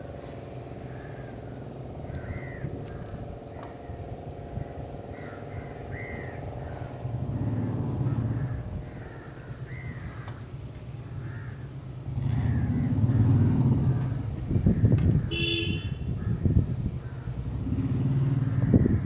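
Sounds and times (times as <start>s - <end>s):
vehicles passing: 0.0s - 19.0s
crows cawing: 0.8s - 11.8s.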